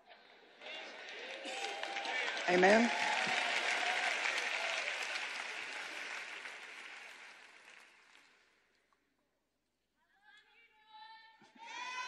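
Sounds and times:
audience applauding: 0.4s - 8.6s.

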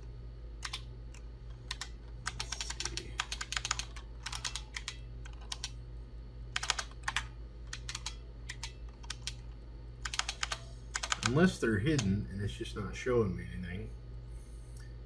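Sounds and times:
steady low hum: 0.0s - 15.0s
keyboard typing clicks: 0.6s - 5.8s, 6.6s - 11.4s.

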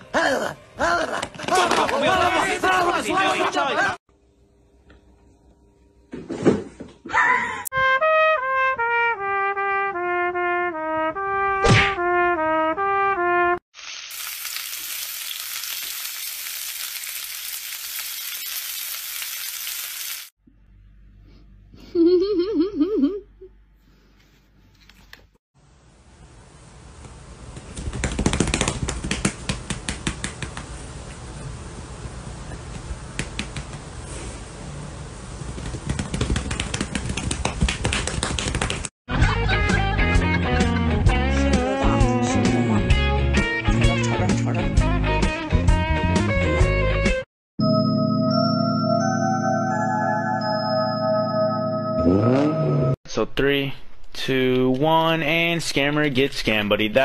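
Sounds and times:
food sizzling in a pan: 13.8s - 20.3s.

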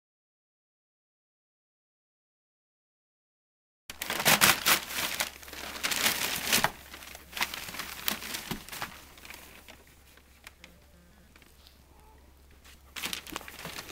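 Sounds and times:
paper bedding crinkling: 3.9s - 10.8s, 12.5s - 13.9s.

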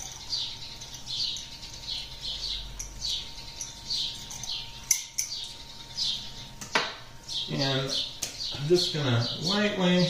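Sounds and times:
pepper mill squeaking: 0.0s - 6.6s.

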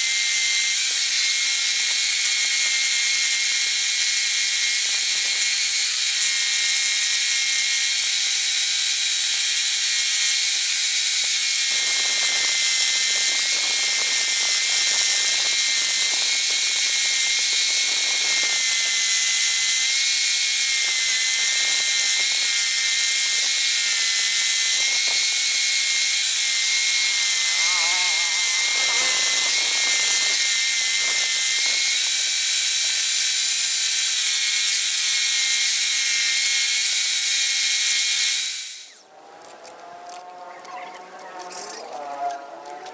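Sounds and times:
scroll saw cutting wood: 0.0s - 42.9s.

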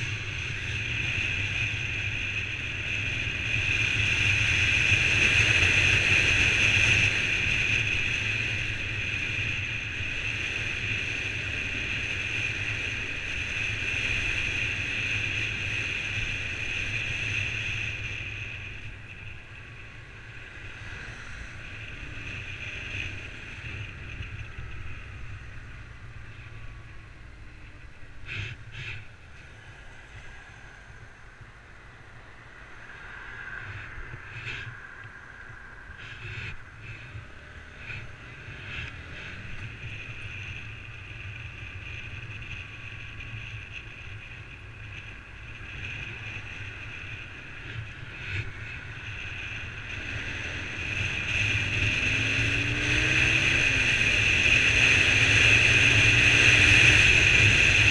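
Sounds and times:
motorcycle engine running: 0.0s - 31.5s, 33.6s - 57.9s.

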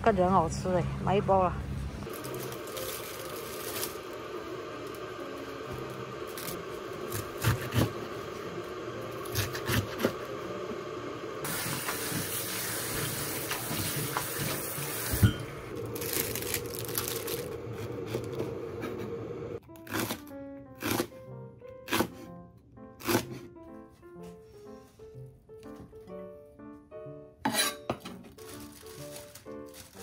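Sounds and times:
cabbage leaves rustling: 2.0s - 7.7s, 15.7s - 18.4s, 28.3s - 30.0s
tap water running into steel sink: 11.5s - 15.3s.

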